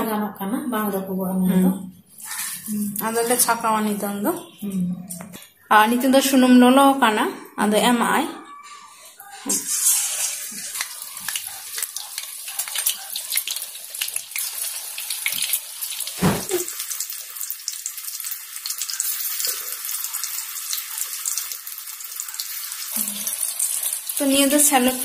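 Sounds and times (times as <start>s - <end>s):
fritters deep-frying in oil: 9.5s - 25.0s.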